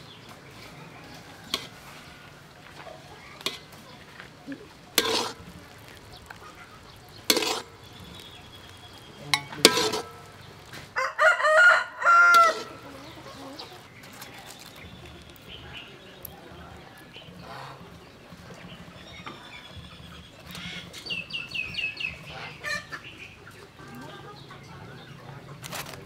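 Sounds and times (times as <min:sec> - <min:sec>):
rooster crowing: 0:11.0 - 0:13.0.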